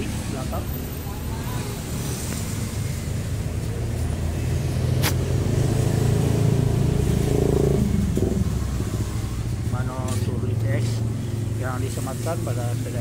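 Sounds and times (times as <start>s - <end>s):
vehicle engine humming: 0.0s - 13.0s
sharp click: 5.0s - 5.2s.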